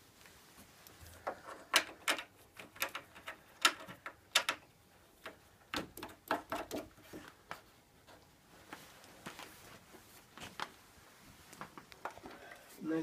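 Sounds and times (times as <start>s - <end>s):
clicks and knocks of stand parts: 1.2s - 7.3s.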